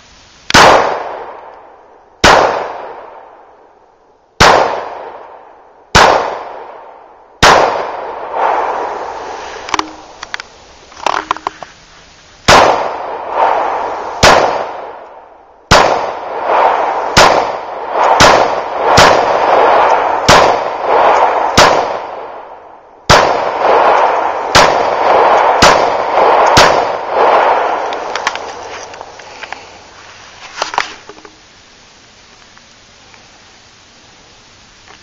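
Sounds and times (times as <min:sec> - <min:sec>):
pistol shots with long echo: 0:00.5 - 0:03.7, 0:04.4 - 0:09.0, 0:12.5 - 0:13.6, 0:14.2 - 0:28.1.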